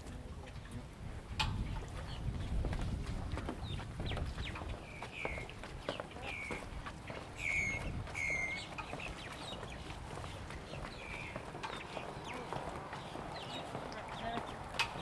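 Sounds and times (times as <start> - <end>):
bird calling: 3.6 - 15.0.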